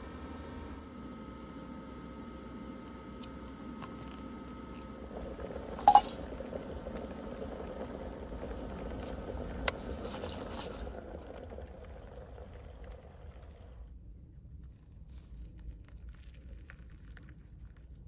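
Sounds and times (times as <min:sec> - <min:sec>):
sharp ringing clink: 0:05.8 - 0:06.2.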